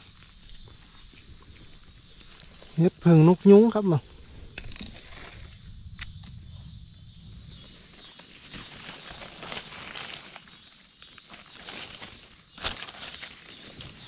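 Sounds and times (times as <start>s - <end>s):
insects chirring: 0.0s - 14.0s
footsteps crunching through leaf litter: 7.8s - 14.0s.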